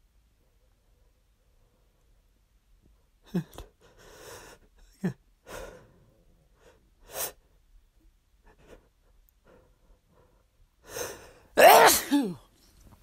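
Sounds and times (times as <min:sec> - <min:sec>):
person sneezing: 0:11.6 - 0:12.5.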